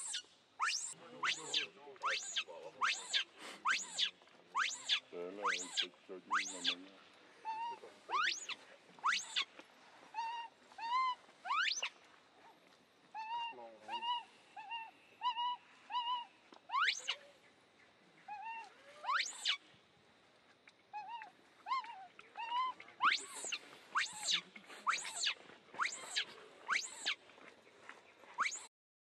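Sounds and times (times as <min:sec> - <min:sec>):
baby monkey coo calls: 0:00.0 - 0:06.8, 0:07.4 - 0:09.5, 0:10.1 - 0:11.9, 0:13.1 - 0:17.3, 0:18.2 - 0:19.6, 0:20.9 - 0:27.2, 0:28.4 - 0:28.7
monkey rising shriek: 0:00.0 - 0:06.8, 0:07.5 - 0:09.5, 0:10.2 - 0:11.9, 0:13.2 - 0:17.2, 0:18.3 - 0:19.6, 0:21.0 - 0:27.2, 0:28.4 - 0:28.7.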